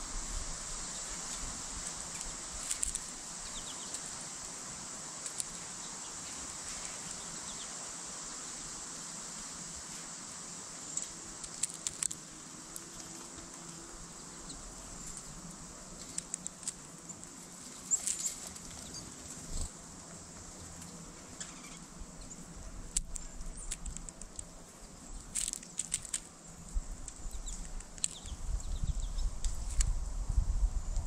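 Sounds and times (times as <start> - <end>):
bird pecking at seed: 0.9 - 7.6, 10.9 - 19.7, 22.6 - 28.4.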